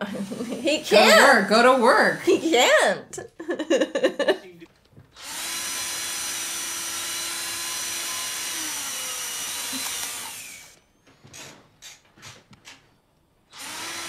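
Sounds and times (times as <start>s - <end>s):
power drill running: 5.2s - 10.8s, 13.5s - 14.0s.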